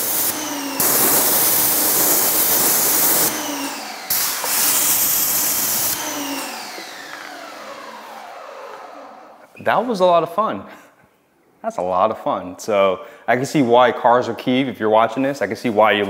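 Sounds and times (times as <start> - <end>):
pressure washer water jet hissing: 0.0 - 8.1
electric motor humming: 0.0 - 9.4.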